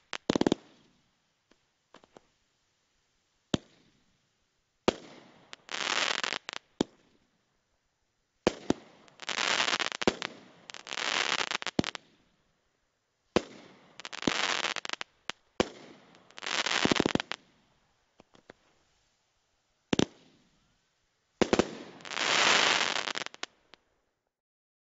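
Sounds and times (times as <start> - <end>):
firework crackling: 0.0 - 0.9, 4.9 - 7.0, 8.5 - 12.2, 13.4 - 17.5, 21.4 - 23.6
small firework pops: 0.0 - 2.3, 3.5 - 4.0, 4.8 - 7.2, 8.4 - 12.3, 13.3 - 17.6, 18.2 - 18.8, 19.9 - 20.6, 21.4 - 23.6.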